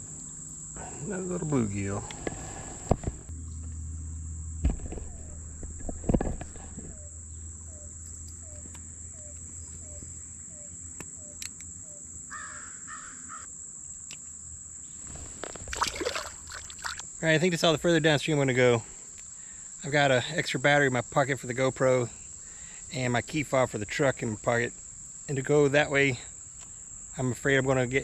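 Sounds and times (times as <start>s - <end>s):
high insect buzz: 0.0s - 17.6s, 18.8s - 23.2s, 24.0s - 28.0s
knocks and bumps: 4.6s - 7.0s.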